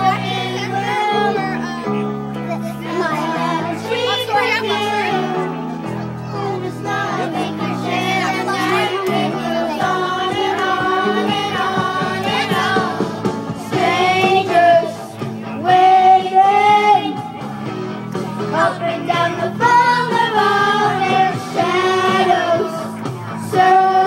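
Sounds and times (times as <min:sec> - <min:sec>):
karaoke backing track: 0:00.0 - 0:24.0
voices singing along: 0:00.0 - 0:24.0
child singing into a microphone: 0:06.2 - 0:13.0, 0:18.5 - 0:24.0.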